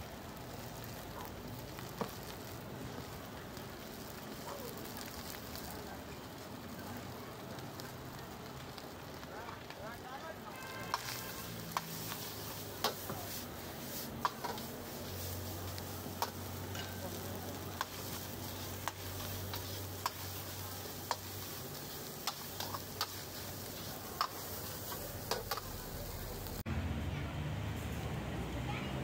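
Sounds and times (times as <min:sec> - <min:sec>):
food sizzling: 0:00.0 - 0:26.7
metal utensil scraping a wok: 0:10.5 - 0:26.6.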